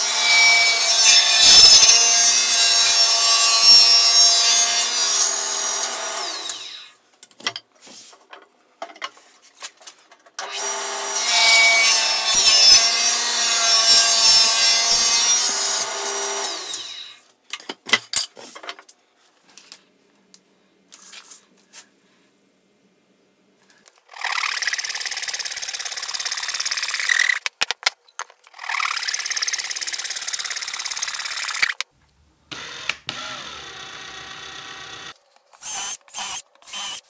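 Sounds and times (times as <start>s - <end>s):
table saw cutting wood: 0.0s - 6.9s, 10.4s - 17.2s, 32.5s - 37.0s.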